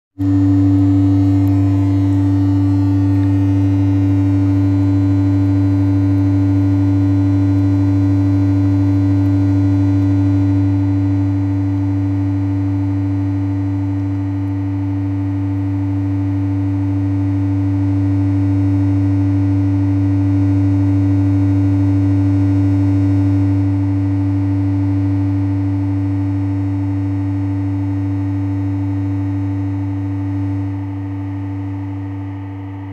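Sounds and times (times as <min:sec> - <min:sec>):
low electronic drone: 0:00.2 - 0:10.4.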